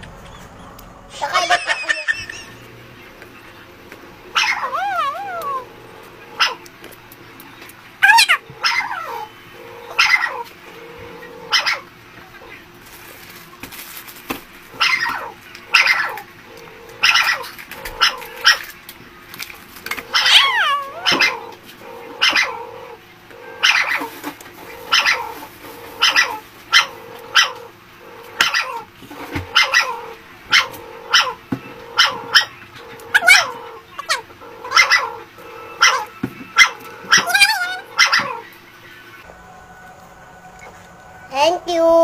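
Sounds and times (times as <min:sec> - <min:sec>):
dog yelping: 0:01.2 - 0:02.6, 0:04.3 - 0:06.7, 0:08.0 - 0:10.5, 0:11.3 - 0:11.9, 0:14.7 - 0:18.7, 0:20.0 - 0:38.5
dog barking: 0:06.4 - 0:06.6, 0:11.5 - 0:11.8, 0:14.8 - 0:16.1, 0:21.0 - 0:21.4, 0:22.2 - 0:22.6, 0:24.9 - 0:25.3, 0:26.0 - 0:27.6, 0:29.5 - 0:33.6, 0:34.6 - 0:35.1, 0:35.8 - 0:38.4.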